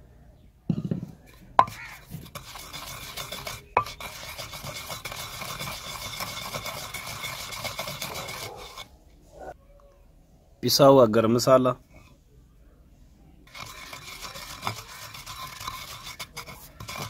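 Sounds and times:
pestle knocking in stone mortar: 0.7s - 8.4s
pestle grinding spices: 1.6s - 8.9s, 13.5s - 17.0s.

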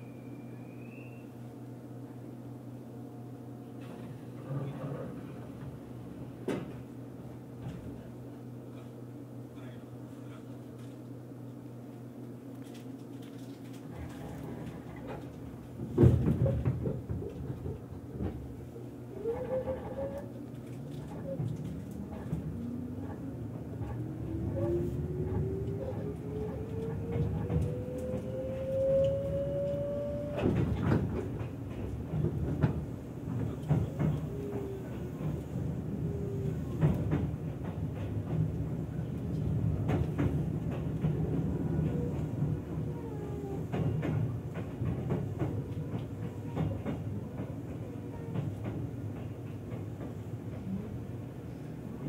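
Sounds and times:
train rumbling on track: 0.0s - 52.0s
train motor whine rising: 24.2s - 30.6s.

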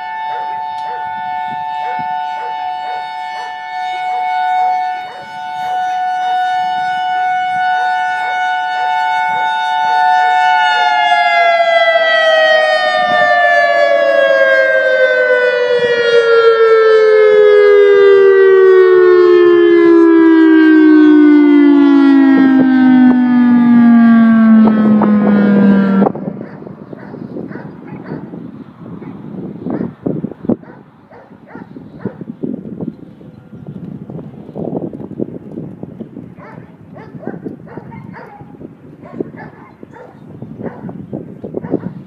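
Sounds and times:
two-tone electronic siren: 0.0s - 30.7s.

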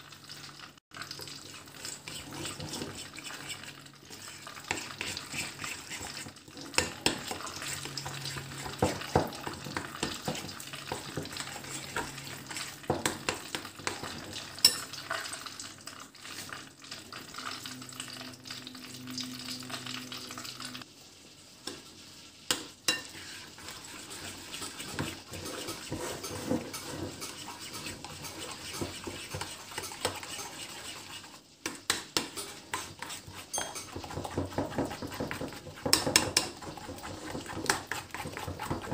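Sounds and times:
spoon stirring dough in bowl: 1.0s - 15.3s, 22.5s - 38.9s.

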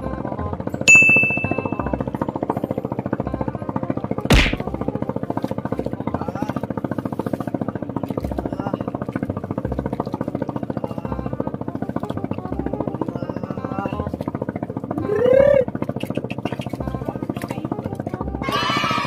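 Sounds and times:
fast pulsing music: 0.0s - 19.0s
sharp whack: 4.3s - 4.7s.

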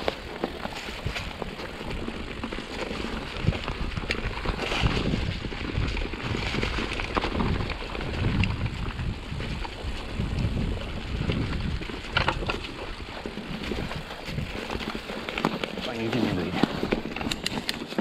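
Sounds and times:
bicycle tyres rumbling over stones: 0.0s - 18.0s
bike rattling: 0.0s - 18.0s.

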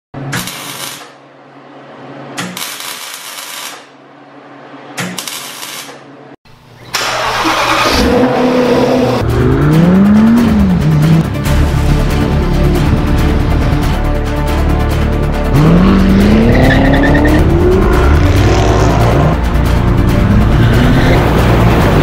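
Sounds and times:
arc welding crackling: 0.3s - 1.2s, 2.4s - 4.0s, 5.0s - 6.0s
car engine revving: 7.0s - 13.9s, 15.4s - 22.0s.

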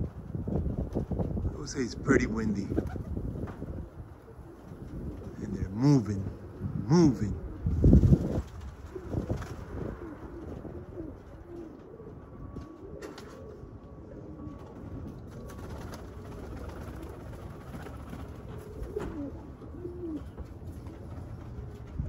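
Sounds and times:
wind on microphone: 0.0s - 12.7s
pigeons cooing: 0.0s - 22.0s.

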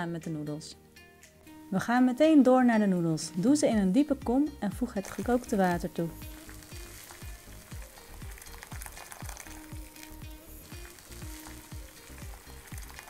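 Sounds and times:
music with thumping beat: 3.7s - 13.0s
water pouring from a kettle: 5.0s - 13.0s.

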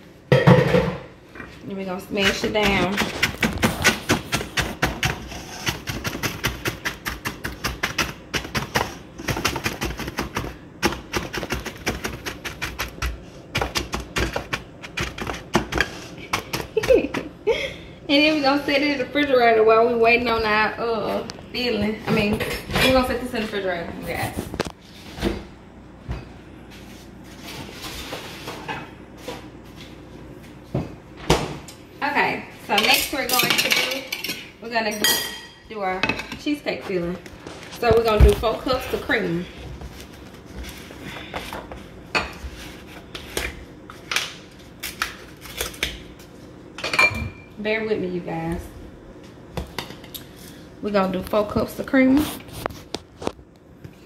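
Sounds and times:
utensil tapping crust in a dish: 2.1s - 17.3s.

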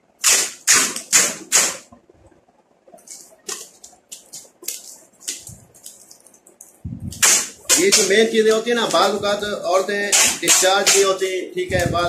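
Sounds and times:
packing tape crinkling: 3.0s - 9.4s.

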